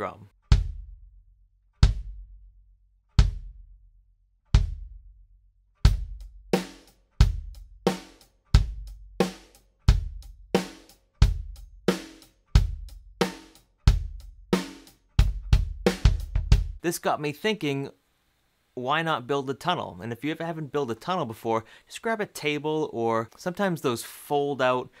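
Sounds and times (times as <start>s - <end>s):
drum kit beat: 0.0s - 1.0s, 1.8s - 2.3s, 3.2s - 3.6s, 4.6s - 5.0s, 5.8s - 16.8s
kick drum hits: 0.5s - 0.9s, 1.8s - 2.3s, 3.2s - 3.6s, 4.6s - 5.0s.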